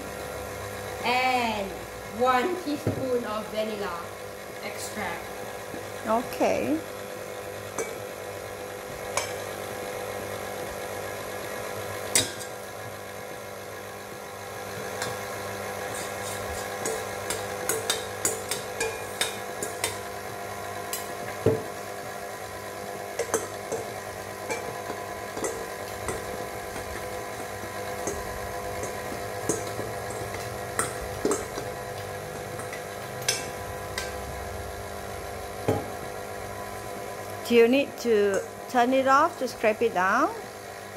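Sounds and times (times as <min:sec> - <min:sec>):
stand mixer motor running: 0:06.8 - 0:38.8.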